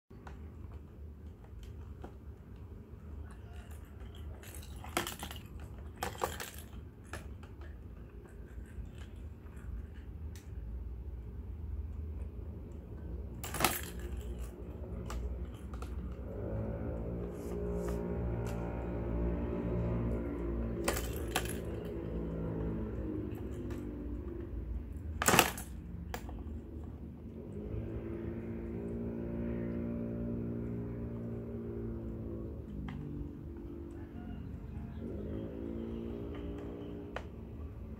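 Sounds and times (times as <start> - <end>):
ball rattling in plastic tray: 3.3 - 10.2, 13.4 - 16.3, 20.7 - 24.4.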